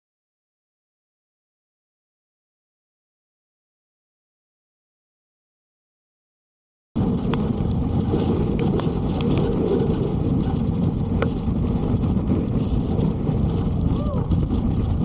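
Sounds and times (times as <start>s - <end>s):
gusty wind on microphone: 7.0s - 15.0s.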